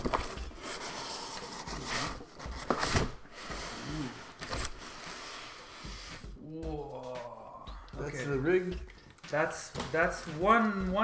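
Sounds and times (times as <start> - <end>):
cardboard scraping against foam: 0.0 - 6.3.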